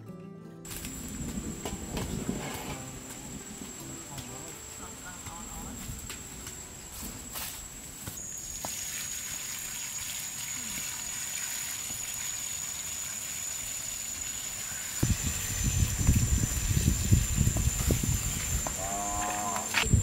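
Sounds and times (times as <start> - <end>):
water pouring into metal basin: 8.6 - 14.6
low thumps and rumbling: 15.0 - 18.8.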